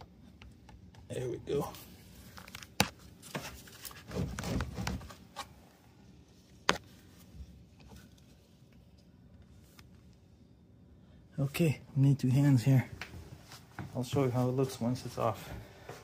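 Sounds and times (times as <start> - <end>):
plastic scraping: 2.7 - 5.3.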